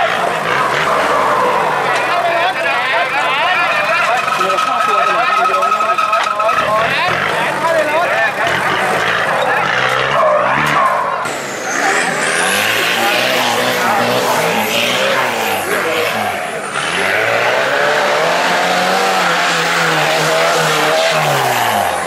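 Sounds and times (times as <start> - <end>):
off-road engine revving hard: 0.0 - 4.9, 6.5 - 22.0
tyres spinning in loose dirt: 0.0 - 10.6.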